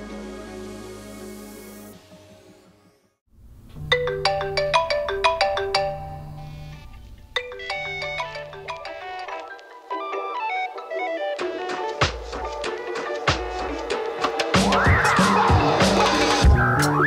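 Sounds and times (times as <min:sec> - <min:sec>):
phone vibration buzzing: 0:03.4 - 0:09.3
phone alarm chiming melody: 0:03.8 - 0:09.4.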